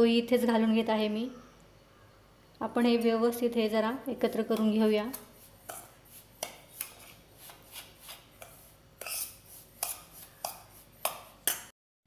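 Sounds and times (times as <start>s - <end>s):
spoon scraping grains in metal bowl: 4.2s - 11.7s.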